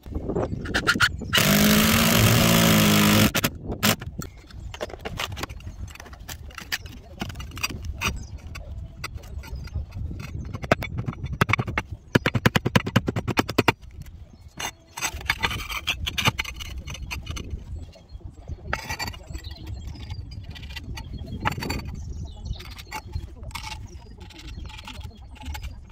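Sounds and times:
tiles scraping: 0.6 - 13.8, 14.6 - 17.8, 18.7 - 22.0, 22.6 - 25.9
fast run of clicks: 0.6 - 17.6, 18.7 - 25.9.

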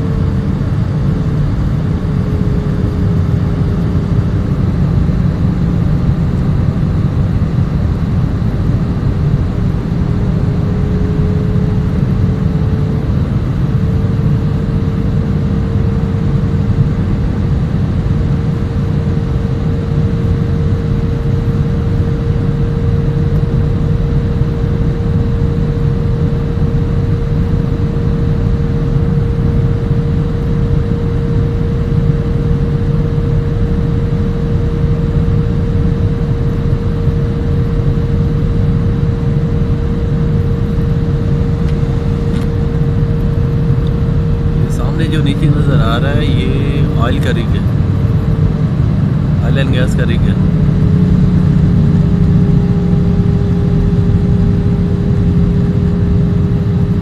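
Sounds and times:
jet engine and airflow drone: 0.0 - 57.0
steady high whine: 0.0 - 57.0.

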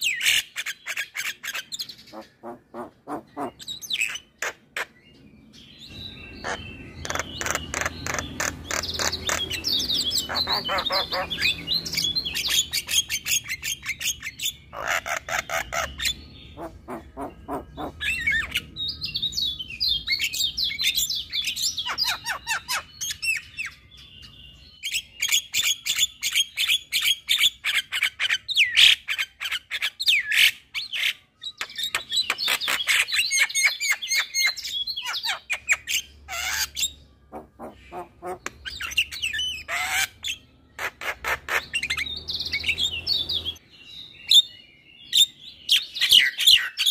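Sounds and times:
myna bird chattering song: 0.0 - 46.9.

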